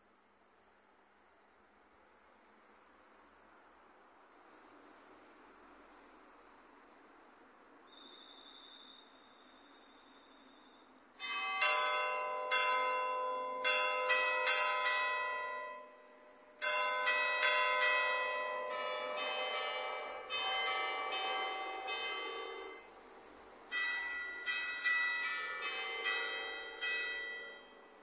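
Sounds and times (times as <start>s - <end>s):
church bells playing a melody: 11.2s - 28.0s.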